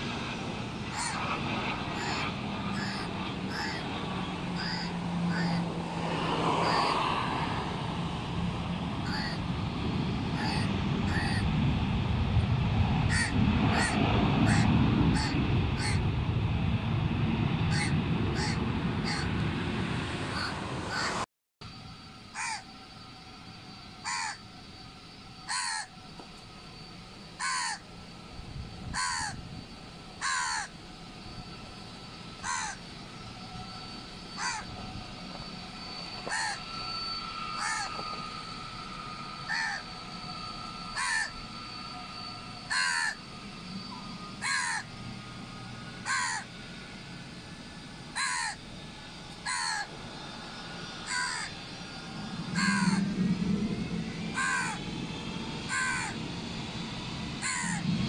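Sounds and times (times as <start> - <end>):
faint steady whine and hum: 0.0 - 58.0
bird calling: 1.9 - 3.9, 4.5 - 5.8, 9.0 - 9.5, 10.3 - 11.5, 13.1 - 16.0, 17.7 - 19.3, 20.3 - 21.2, 22.3 - 22.7, 24.0 - 24.4, 25.5 - 25.9, 27.4 - 27.8, 29.0 - 29.4, 30.2 - 30.7, 32.4 - 32.9, 34.3 - 34.7, 36.2 - 36.8, 37.5 - 38.1, 39.4 - 39.9, 40.9 - 41.4, 42.6 - 44.9, 46.0 - 46.5, 48.2 - 48.6, 49.4 - 49.9, 51.0 - 51.6, 52.5 - 53.1, 54.4 - 54.8, 55.7 - 56.2, 57.4 - 57.8.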